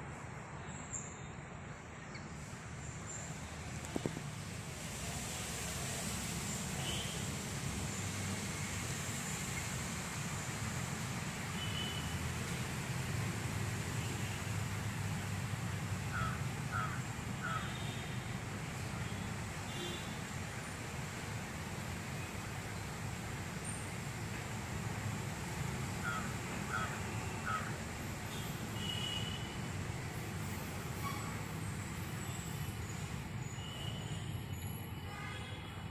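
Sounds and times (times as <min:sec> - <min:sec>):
crow cawing: 0:16.1 - 0:17.7, 0:26.0 - 0:27.7.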